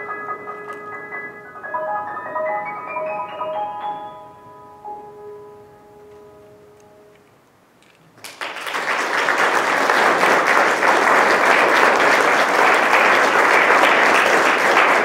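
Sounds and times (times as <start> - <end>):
audience applause: 8.2 - 15.0.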